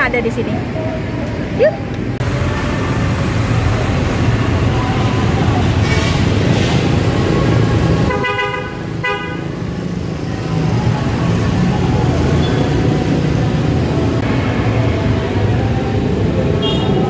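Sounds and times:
road traffic rumble: 0.0s - 17.0s
vehicle horn tooting: 8.1s - 9.4s, 16.6s - 17.0s.

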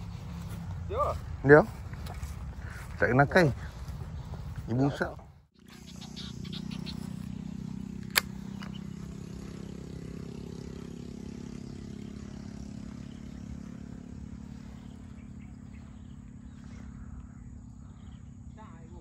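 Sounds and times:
low engine hum: 0.0s - 19.0s
sharp click: 8.0s - 8.8s.

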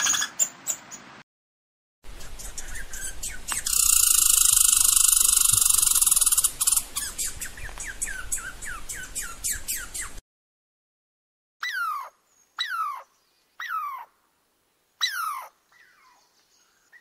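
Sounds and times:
bird buzzing trill: 2.4s - 7.2s.

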